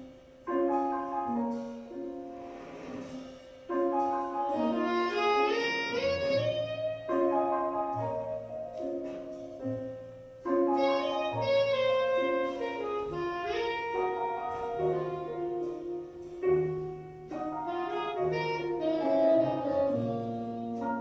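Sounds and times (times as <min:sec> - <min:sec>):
instrumental music with held notes: 0:00.0 - 0:21.0.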